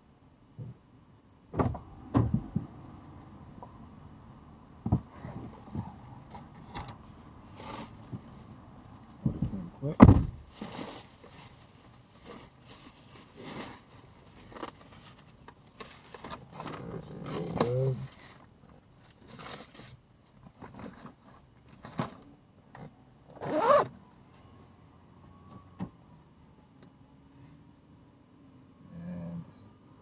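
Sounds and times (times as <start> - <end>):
zipper pulls: 23.4 - 23.9.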